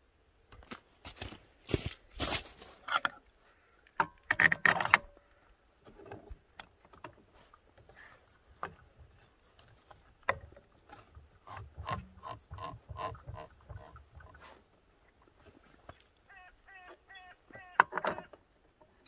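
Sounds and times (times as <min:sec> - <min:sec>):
metal clinks and knocks: 0:15.7 - 0:19.0.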